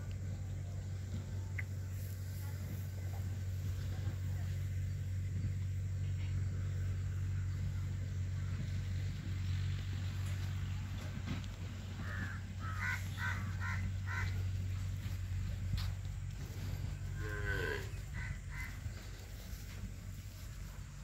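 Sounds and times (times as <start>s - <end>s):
steady low hum: 0.0s - 21.0s
crows cawing: 12.0s - 14.6s, 18.1s - 19.0s
cow lowing: 16.4s - 19.0s.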